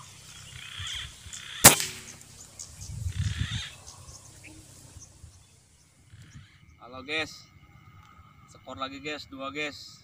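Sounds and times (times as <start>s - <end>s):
air rifle shot: 1.6s - 2.3s.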